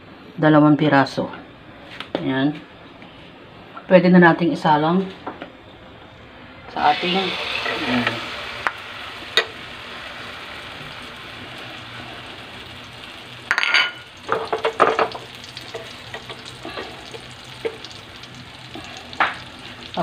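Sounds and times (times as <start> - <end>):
batter sizzling in hot oil: 6.7 - 20.0.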